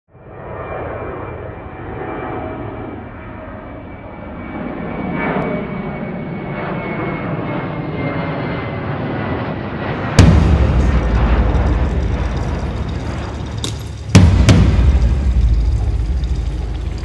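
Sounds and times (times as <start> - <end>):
airplane engines rumbling: 0.1 - 17.0
high steady engine whine: 0.1 - 17.0
sudden loud boom: 10.0 - 17.0.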